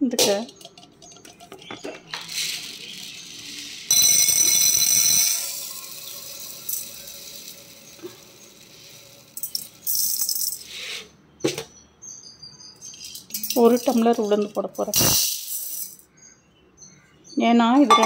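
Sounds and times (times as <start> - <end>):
grains poured into metal tumbler: 2.1 - 10.7.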